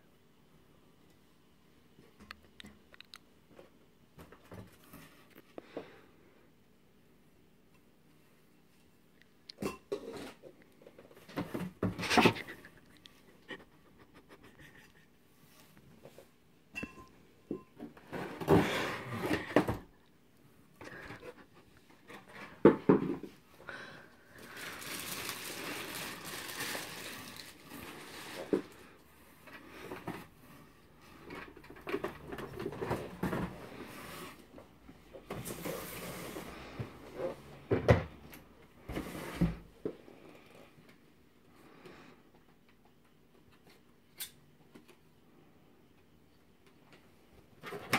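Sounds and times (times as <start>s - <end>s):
cardboard packaging rustling: 24.4s - 28.8s.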